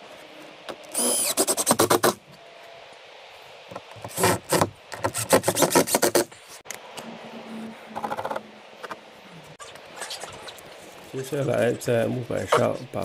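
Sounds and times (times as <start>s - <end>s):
drill motor whine: 0.9s - 1.8s.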